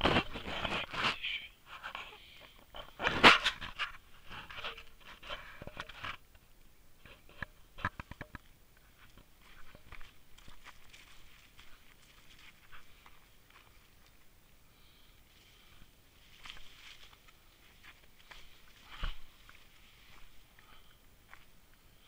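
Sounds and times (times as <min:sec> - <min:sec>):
footsteps on dry leaves and stones: 0:07.2 - 0:14.4, 0:15.3 - 0:22.0
heavy panting breaths: 0:18.2 - 0:21.1.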